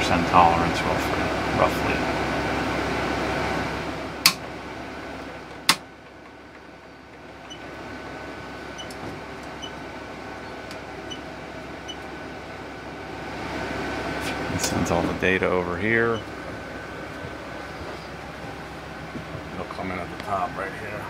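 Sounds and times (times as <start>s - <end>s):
steady background hum: 0.0s - 21.0s.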